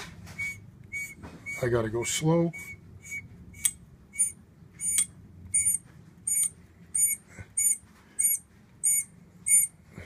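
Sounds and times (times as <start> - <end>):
hand reamer squeaking: 0.3 - 9.8.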